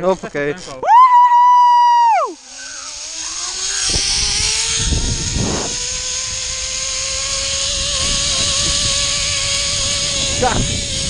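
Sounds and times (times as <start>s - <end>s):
zip line pulley whine: 0.0s - 11.0s
wind on microphone: 3.6s - 11.0s.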